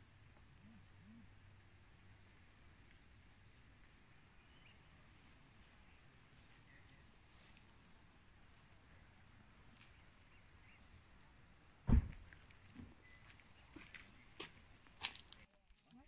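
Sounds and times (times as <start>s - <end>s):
dull thump: 11.8s - 12.9s.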